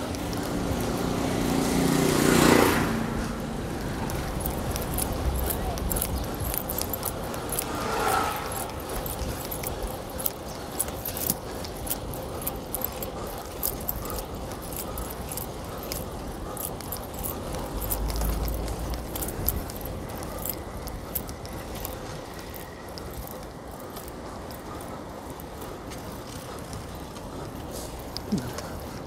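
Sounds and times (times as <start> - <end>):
bicycle metallic rattling and clicking: 0.0 - 29.0
road and wind noise: 0.0 - 29.0.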